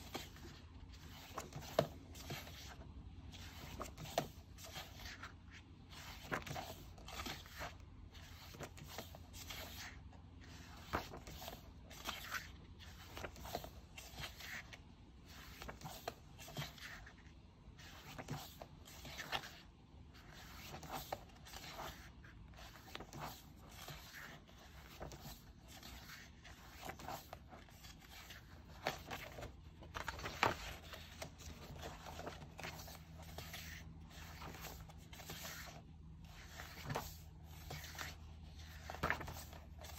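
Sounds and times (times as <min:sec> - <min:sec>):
paper pages rustling: 0:00.0 - 0:19.6, 0:20.2 - 0:39.9
page flip: 0:05.9 - 0:14.7, 0:20.2 - 0:35.8, 0:36.4 - 0:39.9.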